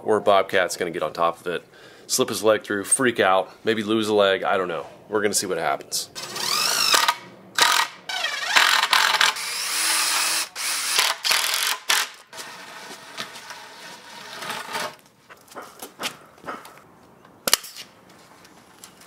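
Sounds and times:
cordless drill driving screws: 6.2s - 15.0s.

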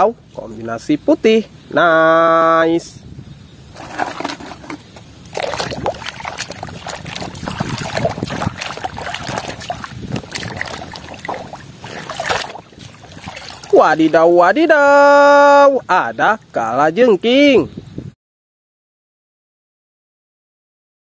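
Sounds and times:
water sloshing in a basin: 3.7s - 14.6s.

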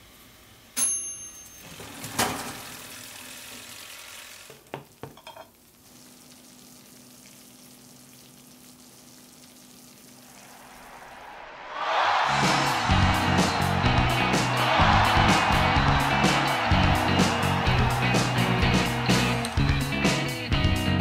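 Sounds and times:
bright metallic ding: 0.8s - 1.8s.

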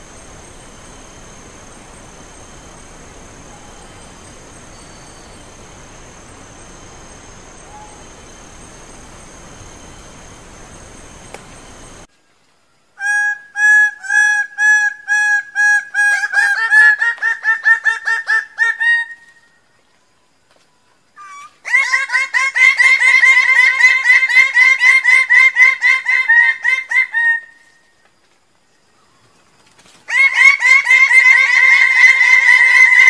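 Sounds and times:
bird calling repeated notes: 0.0s - 12.0s.

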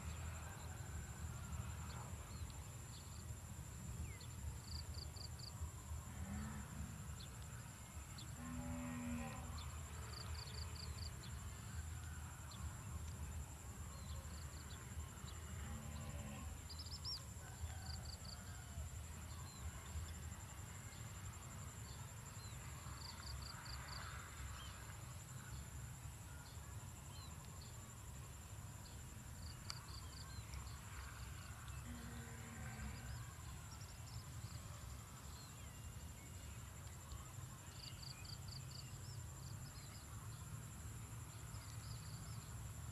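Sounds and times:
insect chirping trills: 0.1s - 42.9s.

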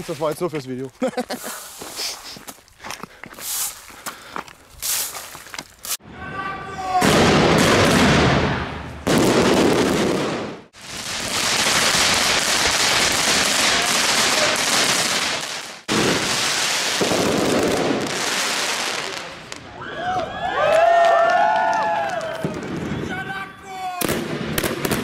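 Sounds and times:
fireworks crackling and hissing: 0.0s - 2.5s, 3.4s - 4.0s, 4.7s - 6.0s, 7.0s - 19.7s.

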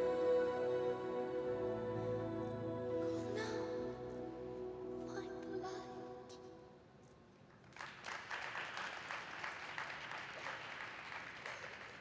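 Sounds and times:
audience applauding: 7.7s - 12.0s.

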